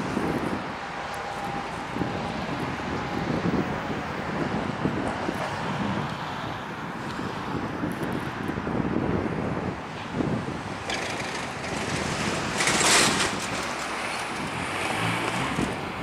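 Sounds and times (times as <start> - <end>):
freight train rumbling: 9.5 - 16.0.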